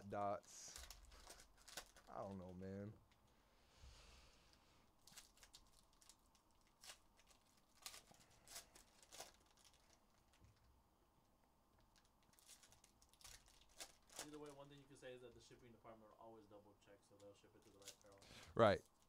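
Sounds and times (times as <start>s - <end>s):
foil wrapper crackling: 0.7s - 2.5s, 5.0s - 10.4s, 11.9s - 14.6s, 17.6s - 18.2s.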